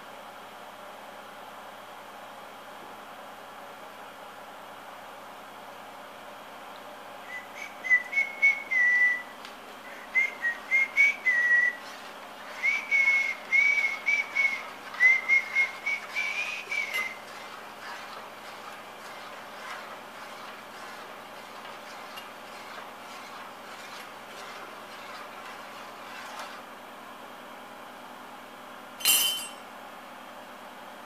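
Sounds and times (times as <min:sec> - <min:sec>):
spoon squeaking in saucepan: 0:12.5 - 0:18.2.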